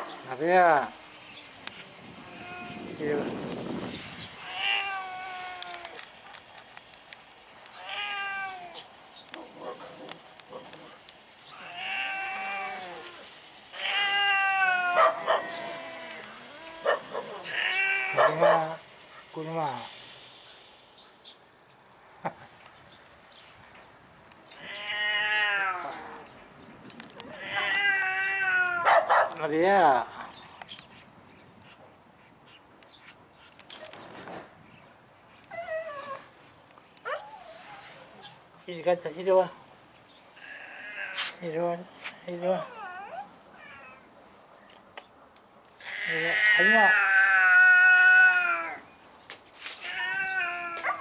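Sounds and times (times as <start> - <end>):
cat yowling: 2.2 - 3.0, 4.4 - 6.0, 7.8 - 8.9, 11.6 - 18.8, 24.6 - 26.3, 27.2 - 29.1, 40.4 - 41.3, 42.3 - 44.1, 45.8 - 48.9, 49.8 - 51.0
animal whining: 11.5 - 18.6, 27.0 - 29.0, 35.2 - 36.3, 37.0 - 38.6, 42.0 - 44.8, 45.8 - 48.9, 49.8 - 51.0.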